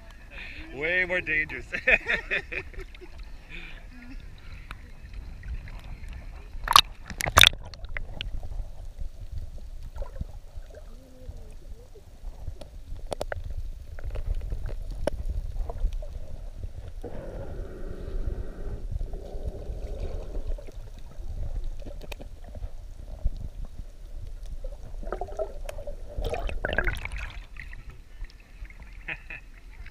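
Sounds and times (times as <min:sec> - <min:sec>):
underwater gurgling and rumbling: 0:02.3 - 0:29.9
sharp splashes: 0:25.0 - 0:27.8.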